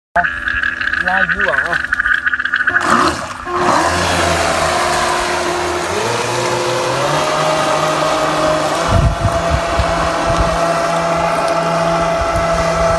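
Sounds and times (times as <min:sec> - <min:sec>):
motor whine: 0:02.7 - 0:12.9
rushing water and spray: 0:02.7 - 0:12.9.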